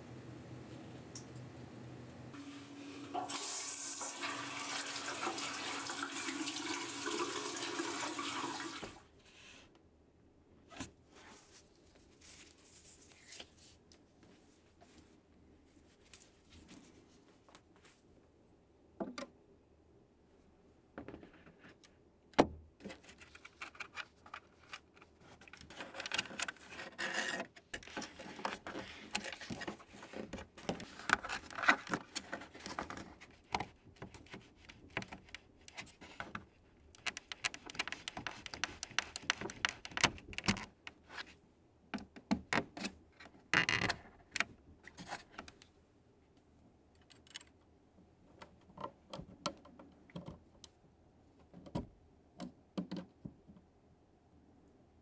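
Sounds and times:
cable pressed into plastic clips: 32.7 - 40.9, 51.5 - 53.1.

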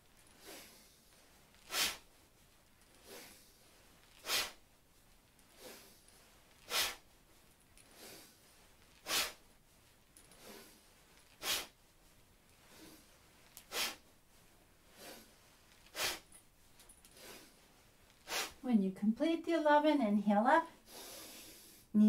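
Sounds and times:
person breathing forcefully: 0.3 - 2.2, 2.9 - 4.7, 5.5 - 7.2, 7.8 - 9.5, 10.2 - 11.8, 12.6 - 14.1, 14.8 - 16.4, 17.1 - 18.6, 20.8 - 22.0.

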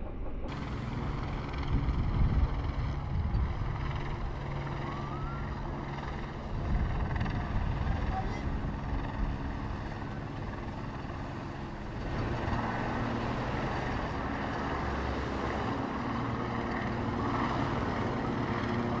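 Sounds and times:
cars driving past: 9.2 - 19.0.

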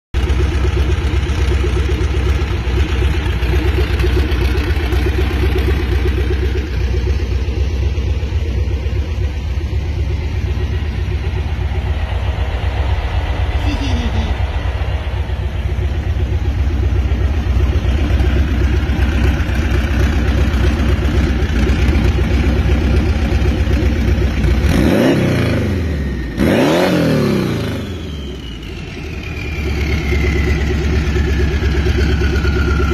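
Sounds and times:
car engine idling and revving: 0.2 - 32.9.

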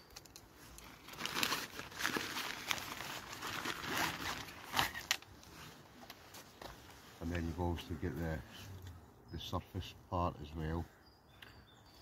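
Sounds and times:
bag and wrapping rustling: 0.5 - 7.5.

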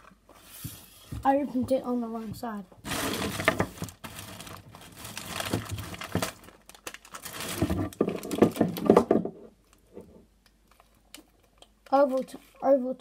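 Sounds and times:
plastic wrapper crinkling: 2.8 - 9.0, 9.6 - 12.2.

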